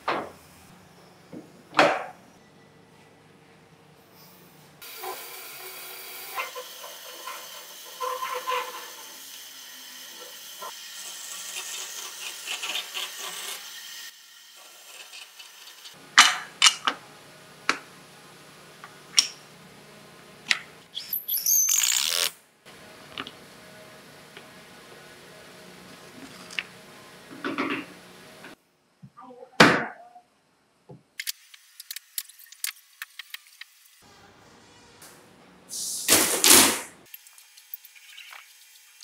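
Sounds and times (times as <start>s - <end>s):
band saw cutting wood: 4.8s - 16.0s.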